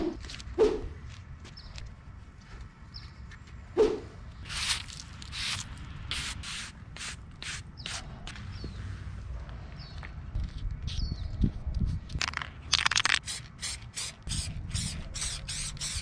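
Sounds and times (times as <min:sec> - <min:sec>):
scrubbing on concrete curb: 0:04.4 - 0:06.5.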